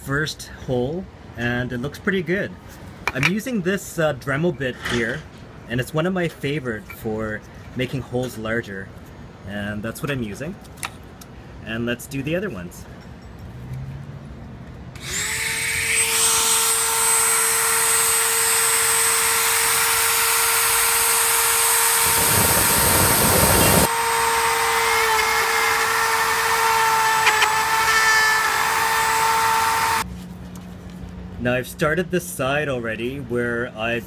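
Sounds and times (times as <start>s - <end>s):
rotary tool grinding plastic: 15.0s - 30.0s.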